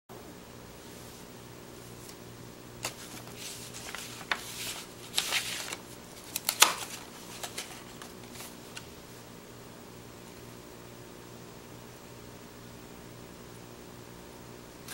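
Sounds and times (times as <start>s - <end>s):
paper snaps and clicks: 2.8s - 8.9s
paper envelope rustling: 2.8s - 9.0s.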